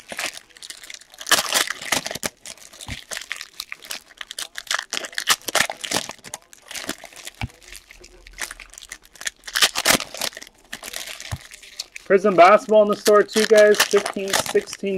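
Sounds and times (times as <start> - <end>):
foil wrappers crinkling: 0.0 - 14.9.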